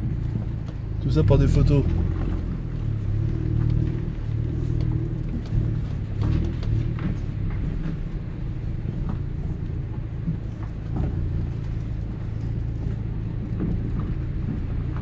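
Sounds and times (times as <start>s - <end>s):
car engine running at low speed: 0.0s - 15.0s
tyres rolling over gravel: 0.0s - 15.0s.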